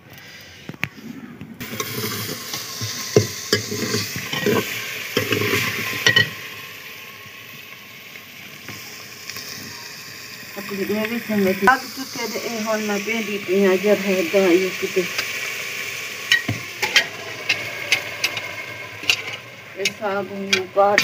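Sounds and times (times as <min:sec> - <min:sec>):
greens sizzling in a pot: 0:01.6 - 0:21.0
metal ladle scraping a pot: 0:01.7 - 0:06.4, 0:16.3 - 0:21.0.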